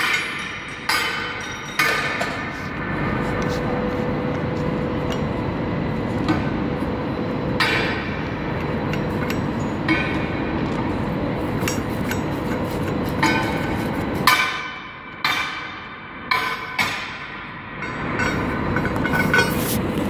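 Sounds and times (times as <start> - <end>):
steady background noise: 0.0 - 20.0.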